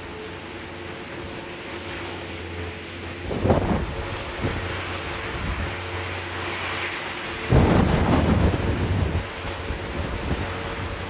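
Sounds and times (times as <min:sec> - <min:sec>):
low mechanical hum: 0:00.0 - 0:11.0
wind gust buffeting microphone: 0:03.2 - 0:06.0, 0:07.3 - 0:11.0.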